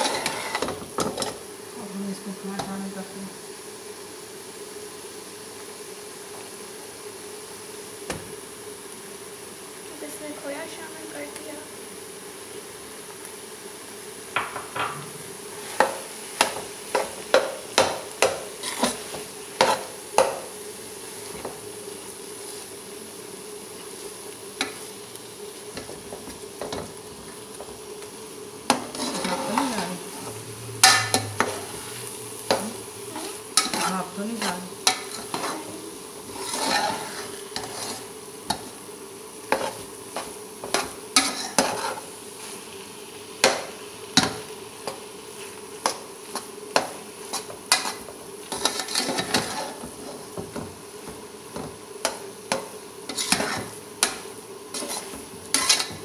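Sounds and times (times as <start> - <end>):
spatula scraping a metal pot: 0.0 - 1.4, 18.6 - 19.9, 28.7 - 30.0, 33.2 - 35.7, 36.3 - 38.1, 39.5 - 42.1, 46.8 - 50.3, 53.1 - 56.0
faint sizzle: 0.0 - 56.0.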